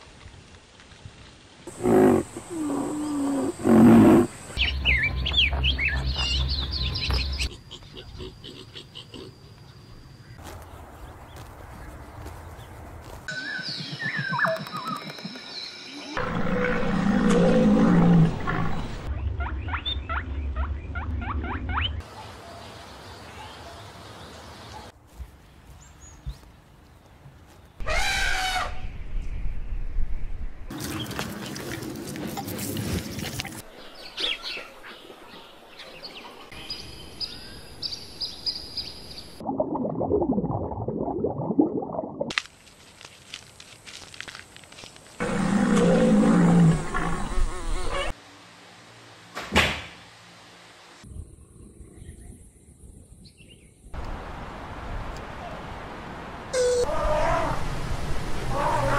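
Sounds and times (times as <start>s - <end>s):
bird chirps: 4.4s - 10.5s, 13.3s - 16.2s
sliding whistle-like animal calls: 56.5s - 57.6s
loud rough low animal call: 58.4s - 58.9s.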